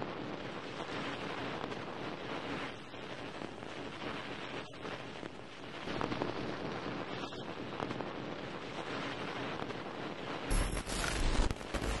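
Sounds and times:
static-like noisy rush: 0.0 - 12.0
rumbling burst with crackles: 0.1 - 12.0.

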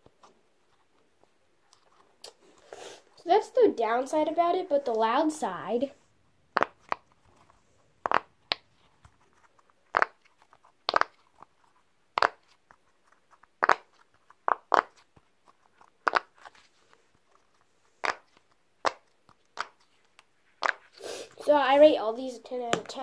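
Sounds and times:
fidget toy bubbles popping: 10.8 - 11.2.

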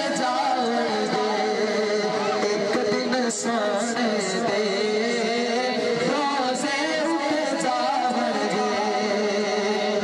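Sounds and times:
men singing devotional hymn: 0.0 - 10.0.

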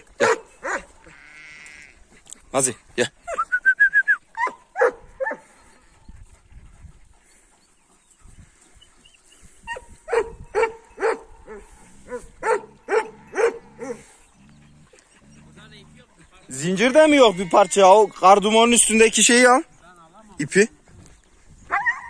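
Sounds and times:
large dogs barking: 0.0 - 1.2, 4.3 - 5.8, 9.6 - 19.4, 21.6 - 22.0.

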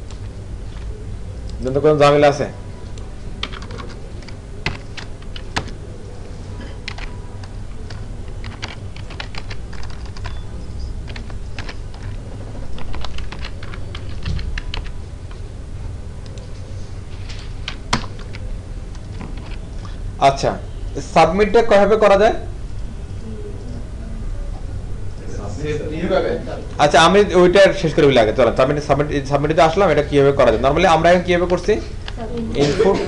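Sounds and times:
low steady hum: 0.0 - 33.0
keyboard keystroke clicks: 2.9 - 5.8, 6.8 - 10.4, 11.0 - 15.0.

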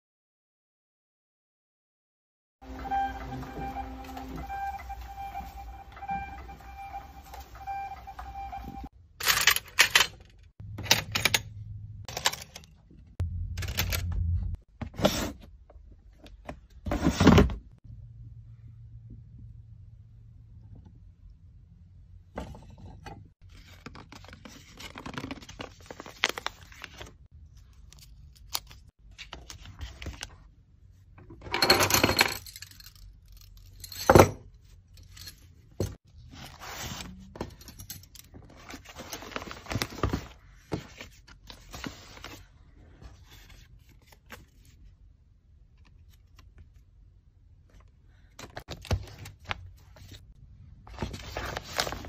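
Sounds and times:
paper mailers rustling: 23.5 - 30.4, 36.2 - 44.8, 50.9 - 52.0.

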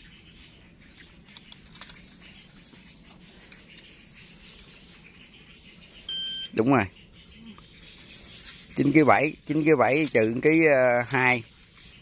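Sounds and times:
rats scratching and clicking: 1.0 - 5.0.

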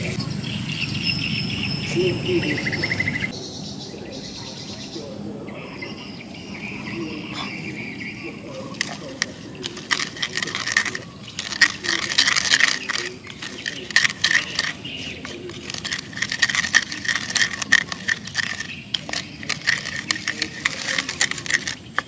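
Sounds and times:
wooden pestle grinding in bowl: 8.5 - 22.0.

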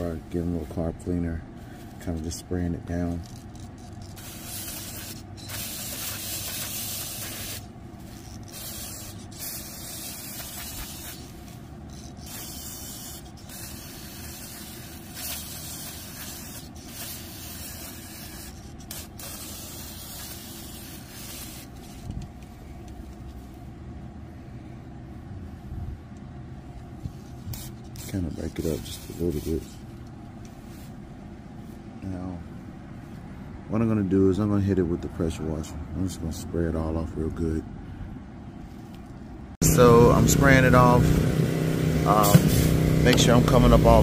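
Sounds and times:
steady low rumble: 0.0 - 44.0
aerosol can spraying: 3.2 - 22.1, 27.4 - 29.7, 42.1 - 44.0.

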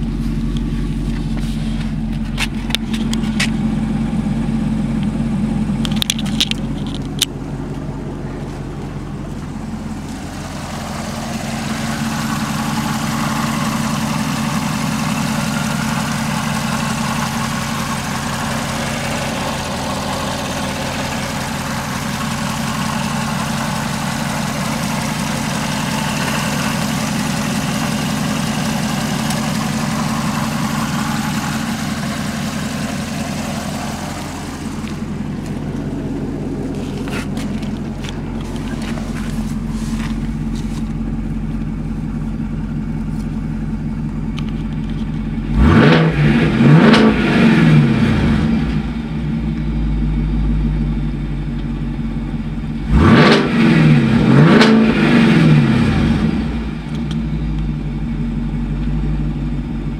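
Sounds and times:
car engine idling: 0.0 - 59.9
engine hiss: 7.6 - 44.0.

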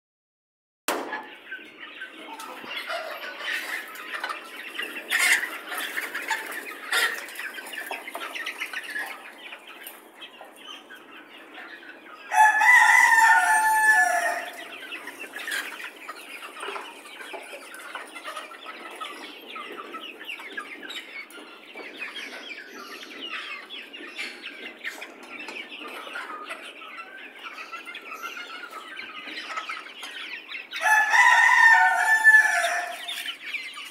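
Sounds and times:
chickens clucking: 0.9 - 33.9
rooster crowing: 12.3 - 14.5, 30.8 - 33.1.

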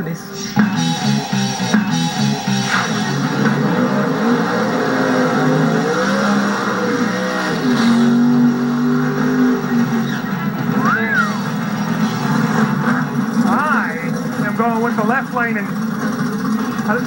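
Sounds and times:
car engines revving: 0.0 - 17.0.

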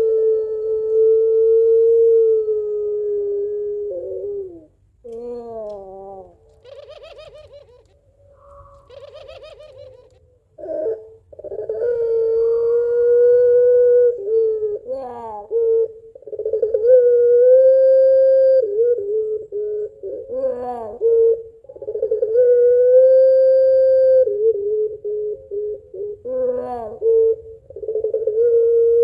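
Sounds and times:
dove cooing: 0.0 - 29.0
dove trilling laughing calls: 5.5 - 13.0.

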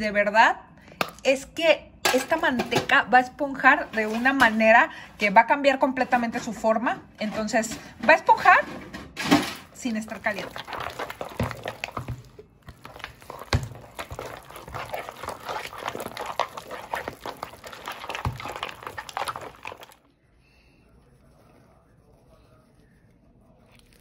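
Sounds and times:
lard beaten in plastic bowl: 3.6 - 4.8, 9.7 - 20.0.

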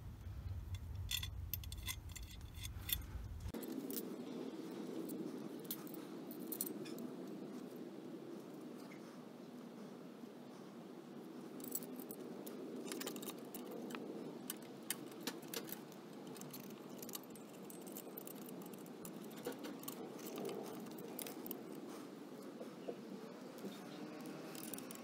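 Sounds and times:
light metallic clinks and rattles: 0.5 - 4.2, 4.9 - 7.6, 11.6 - 22.0, 23.5 - 25.0.

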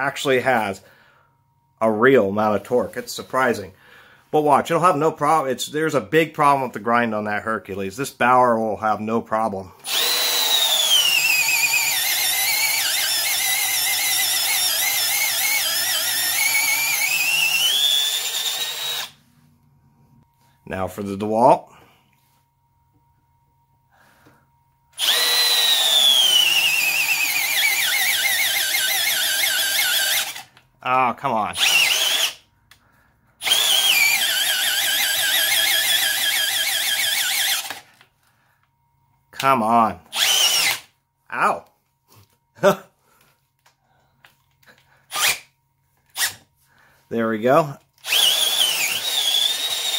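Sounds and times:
cordless drill boring into wood: 9.8 - 19.2, 25.0 - 30.5, 31.6 - 32.4, 33.4 - 37.9, 40.1 - 40.9, 45.1 - 45.5, 46.2 - 46.4, 48.0 - 49.9.

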